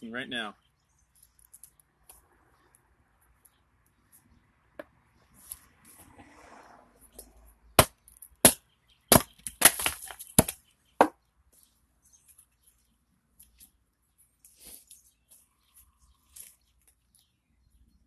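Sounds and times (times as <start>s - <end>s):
axe splitting wood: 7.8s - 11.2s.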